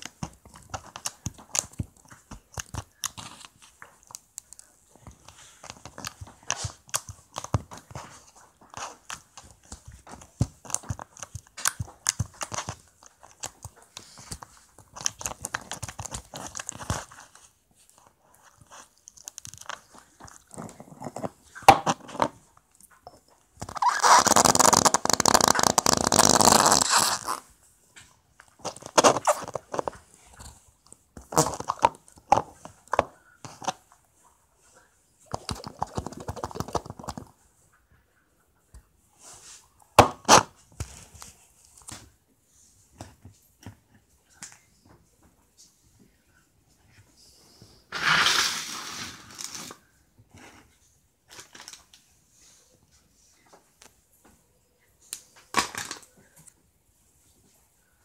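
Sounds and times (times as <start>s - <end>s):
slime squeezed crackling and popping: 23.6s - 27.4s.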